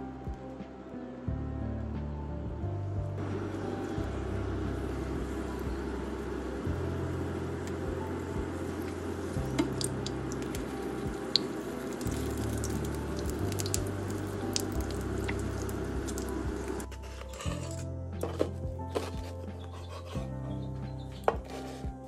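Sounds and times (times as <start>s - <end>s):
oil sizzling and crackling: 3.2s - 17.8s.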